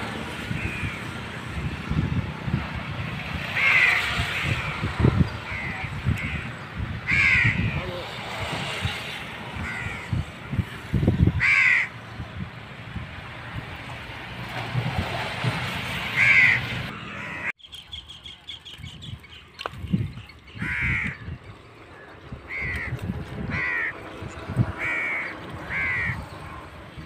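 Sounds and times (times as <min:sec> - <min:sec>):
crows cawing: 0:03.6 - 0:04.8, 0:05.5 - 0:07.8, 0:09.6 - 0:10.2, 0:11.4 - 0:12.0, 0:16.2 - 0:17.5, 0:20.6 - 0:21.3, 0:22.0 - 0:24.0, 0:24.8 - 0:26.3.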